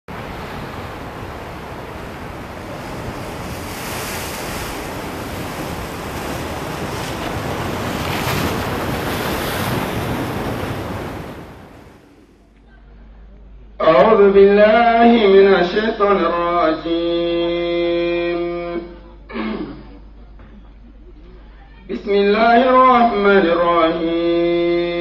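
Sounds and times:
ocean waves and surf: 0:00.1 - 0:12.4.

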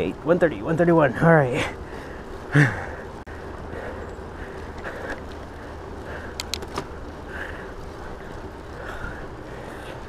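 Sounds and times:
bike tyres on asphalt: 0:00.0 - 0:10.0
sharp clicks: 0:06.3 - 0:07.0.

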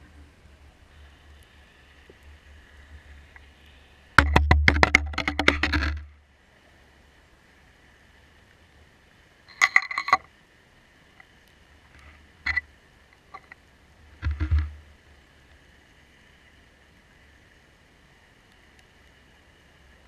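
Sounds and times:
underwater clicks and knocks: 0:04.2 - 0:06.1, 0:09.5 - 0:10.3, 0:12.4 - 0:12.6, 0:14.2 - 0:14.8.

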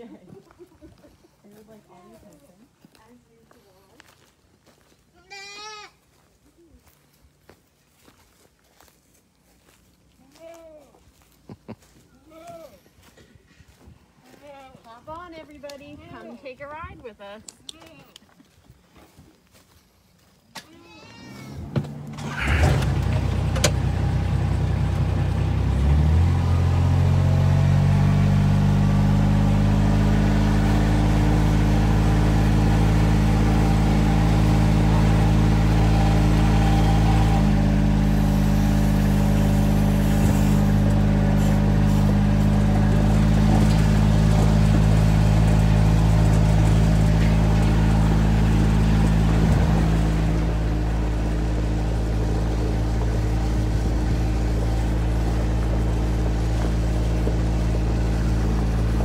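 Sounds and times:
small vehicle engine driving: 0:20.8 - 0:59.0.

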